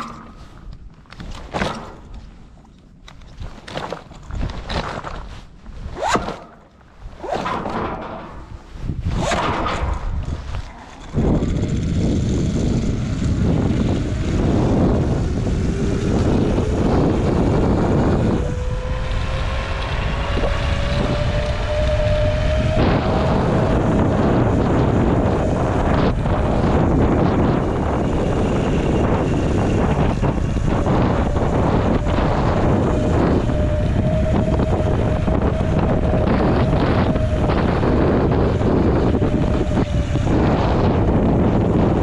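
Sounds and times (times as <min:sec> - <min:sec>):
wind buffeting microphone: 0:00.0 - 0:42.0
faint whine rising in pitch: 0:11.0 - 0:42.0.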